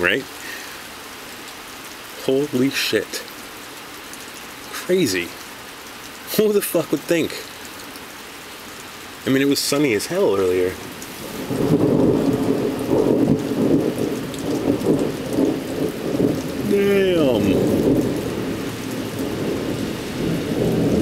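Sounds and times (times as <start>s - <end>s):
heavy rain on pavement: 0.0s - 21.0s
thunder rumbling: 10.8s - 21.0s.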